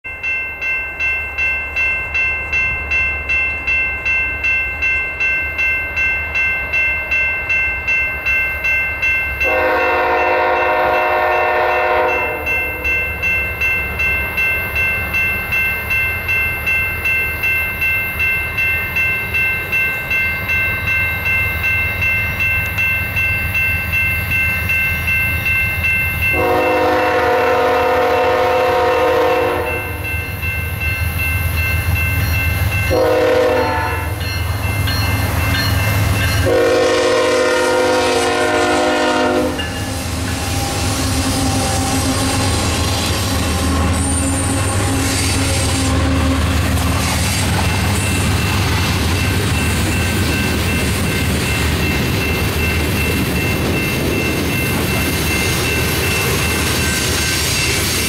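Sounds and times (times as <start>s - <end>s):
crossing bell ringing: 0.0s - 58.0s
train rumbling: 0.1s - 58.0s
locomotive horn blasts: 9.4s - 12.8s, 26.3s - 30.0s, 32.9s - 34.2s, 36.4s - 39.7s.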